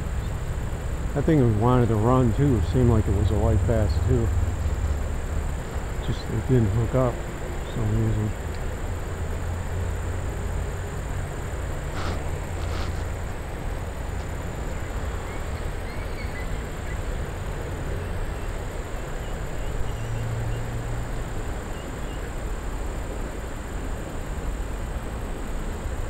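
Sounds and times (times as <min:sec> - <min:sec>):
wind: 0:00.0 - 0:26.0
faint high bird chirps: 0:15.0 - 0:17.1, 0:18.4 - 0:20.6.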